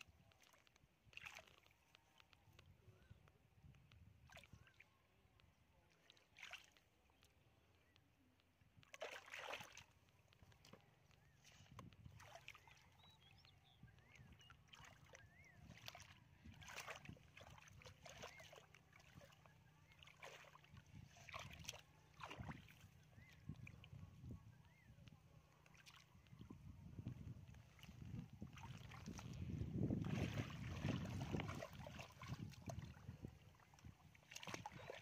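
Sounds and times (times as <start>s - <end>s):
hands splashing in muddy water: 0.1s - 2.4s, 6.0s - 6.9s, 8.8s - 10.8s, 11.4s - 13.0s, 14.0s - 23.4s, 27.5s - 35.0s.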